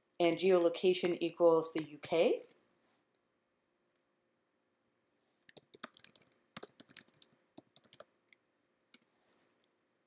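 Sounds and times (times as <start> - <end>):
keyboard typing: 5.4 - 9.7.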